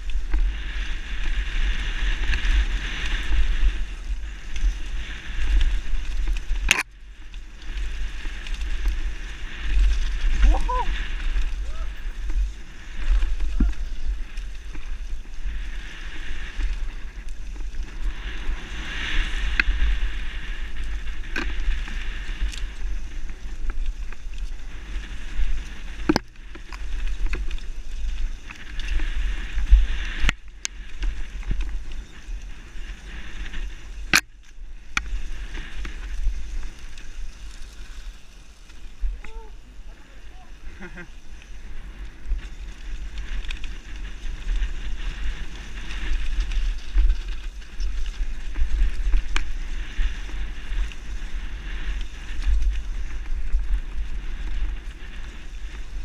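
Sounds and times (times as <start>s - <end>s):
wind buffeting microphone: 0.0s - 38.2s
mountain bike rattling over dirt: 0.0s - 56.0s.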